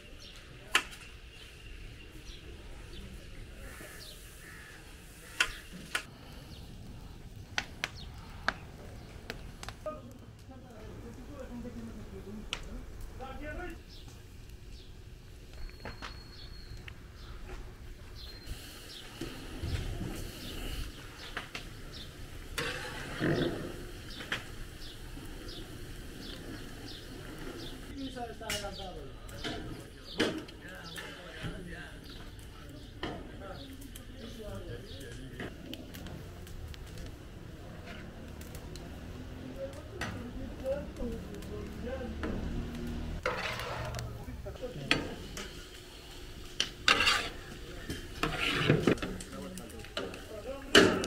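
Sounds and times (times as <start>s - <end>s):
low steady background noise: 0.0s - 51.0s
small bird chirping: 15.6s - 17.5s.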